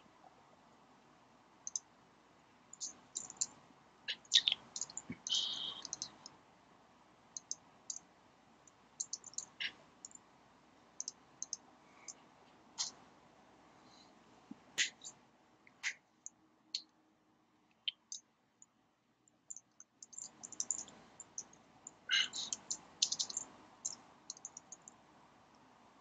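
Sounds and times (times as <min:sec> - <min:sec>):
computer keyboard typing: 0:02.8 - 0:03.5, 0:04.6 - 0:06.2, 0:09.0 - 0:09.5, 0:11.0 - 0:11.6, 0:19.5 - 0:21.5, 0:22.4 - 0:23.4, 0:24.3 - 0:24.8.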